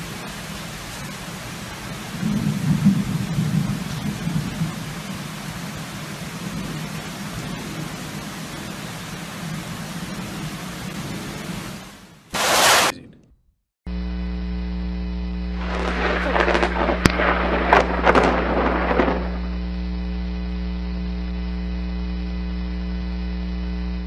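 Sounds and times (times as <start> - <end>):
thunderclap: 2.2 - 4.8, 15.6 - 19.6
sharp crack: 12.3 - 13.3, 15.6 - 19.6
crackling noise: 12.3 - 23.1
steady electrical hum: 13.9 - 24.0.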